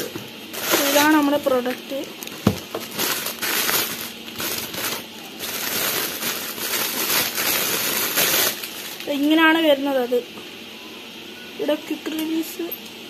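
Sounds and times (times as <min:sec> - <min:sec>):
plastic bags crinkling: 0:00.5 - 0:09.4.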